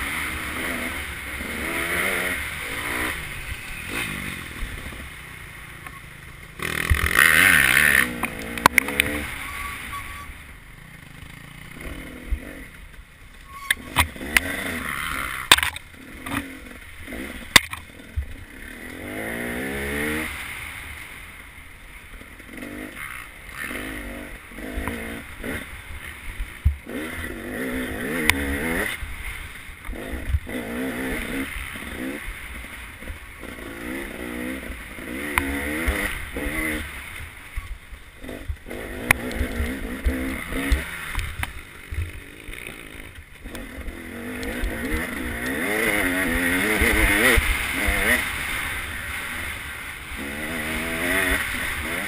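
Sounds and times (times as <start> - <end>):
dirt bike engine revving: 0.0 - 21.1, 22.1 - 52.0.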